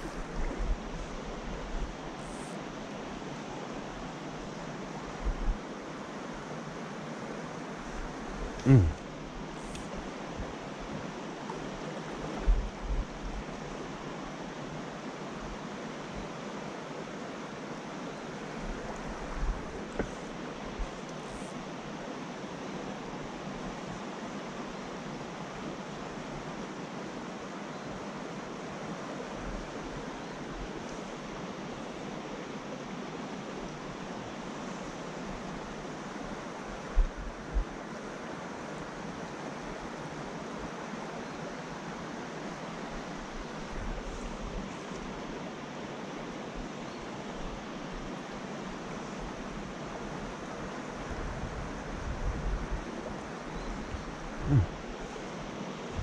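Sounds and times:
low thumps on microphone: 54.4s - 54.7s.

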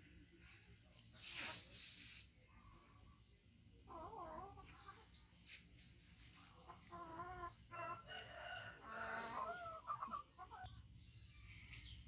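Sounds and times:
rooster crowing: 7.8s - 9.8s.

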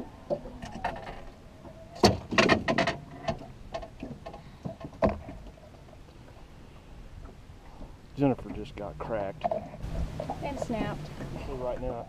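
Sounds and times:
sharp knocks on a boat: 2.0s - 5.4s.

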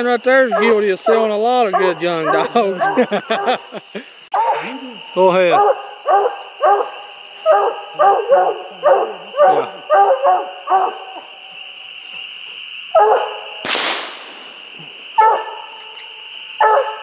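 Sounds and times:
dog barking: 0.4s - 3.7s, 4.3s - 4.8s, 5.5s - 11.2s, 12.9s - 13.4s, 15.2s - 15.7s, 16.6s - 17.0s.

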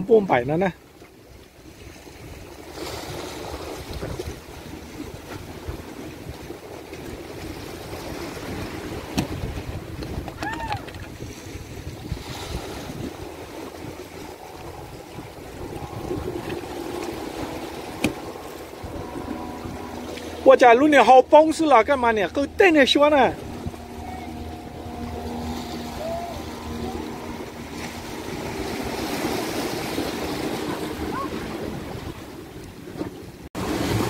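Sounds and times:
waves washing against rock: 1.6s - 34.0s
wind buffeting microphone: 2.1s - 34.0s.

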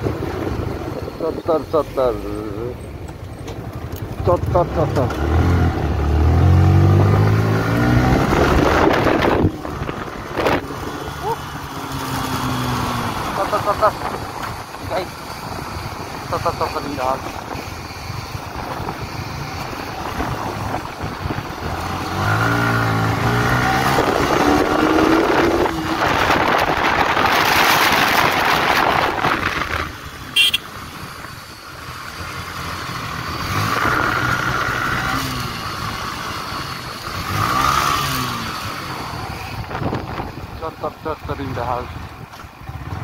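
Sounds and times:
motorcycle engine revving: 3.8s - 43.0s
wind on microphone: 7.3s - 10.9s, 17.3s - 30.0s.

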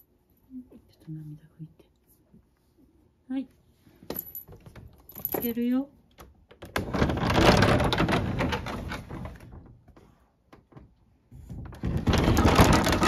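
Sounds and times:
wooden sliding door scraping: 6.8s - 9.7s, 11.7s - 13.0s.

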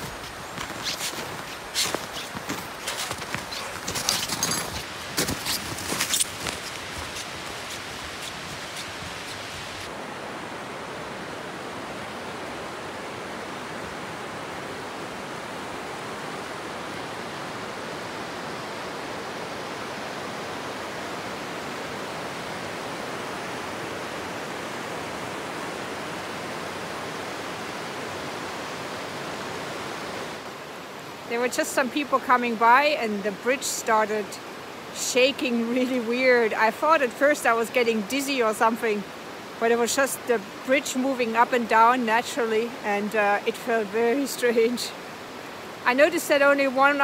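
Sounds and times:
footsteps crunching in snow: 0.0s - 9.9s
river rushing over stones: 0.0s - 47.0s.

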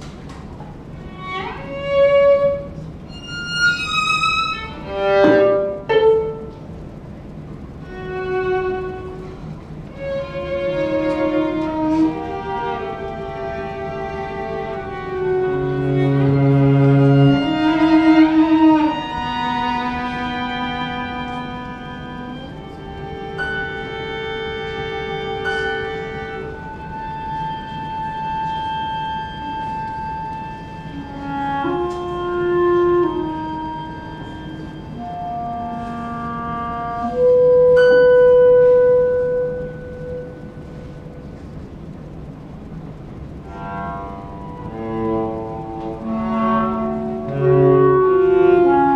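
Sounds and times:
cello long held notes: 0.0s - 48.9s
chamber quartet playing: 0.0s - 48.9s
violin long held notes: 0.0s - 48.9s.

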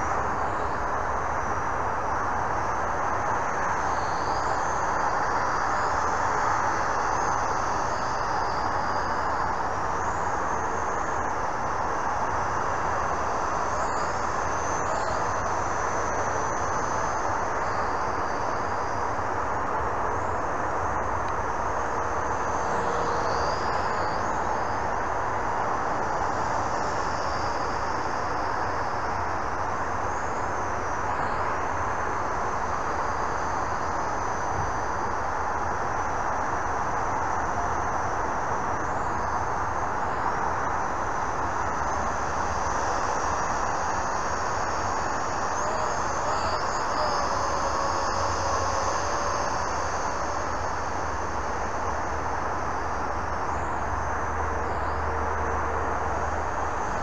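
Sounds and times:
toy drone buzzing: 45.6s - 50.4s.

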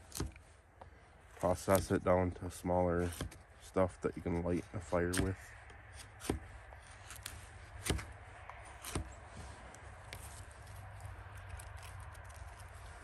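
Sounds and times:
hatchet cracking wood: 0.0s - 0.4s, 3.0s - 3.5s, 5.1s - 9.2s.

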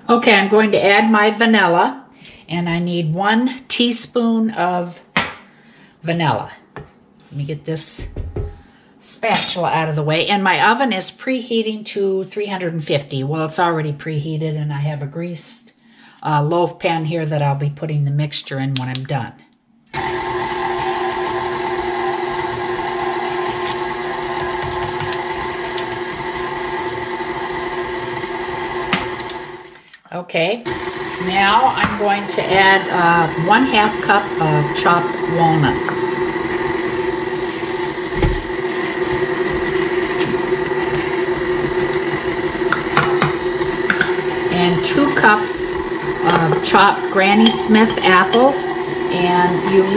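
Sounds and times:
stand mixer running: 20.0s - 29.7s, 30.7s - 49.9s.

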